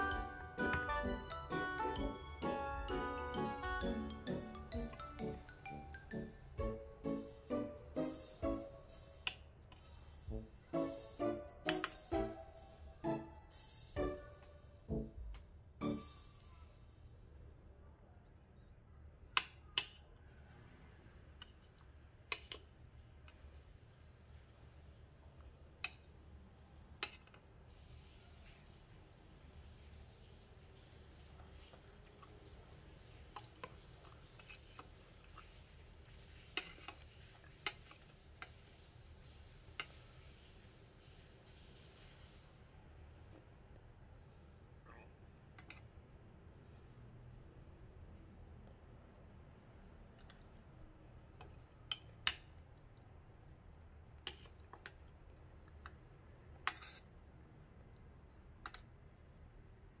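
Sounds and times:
metal spoon scraping a pot: 0:36.5 - 0:38.1, 0:56.6 - 0:57.0.

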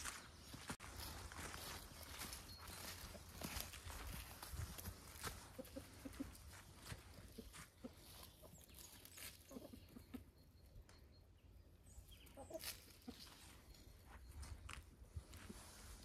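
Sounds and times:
rustles in dry leaves: 0:00.0 - 0:09.9, 0:12.4 - 0:13.8, 0:15.2 - 0:16.0
chickens clucking: 0:01.6 - 0:14.5.

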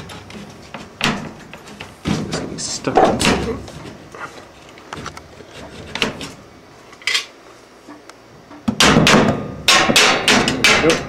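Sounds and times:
knocks of thin metal: 0:03.0 - 0:03.6, 0:08.6 - 0:11.0.

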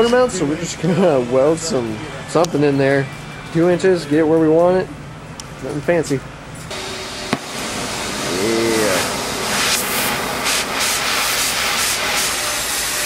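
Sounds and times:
torch flame hissing: 0:06.7 - 0:13.0.

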